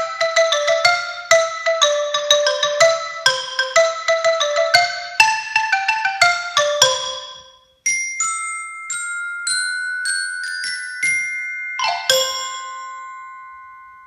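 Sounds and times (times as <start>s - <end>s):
xylophone chord: 0.0s - 7.6s, 11.8s - 14.0s
glockenspiel notes: 0.0s - 14.0s.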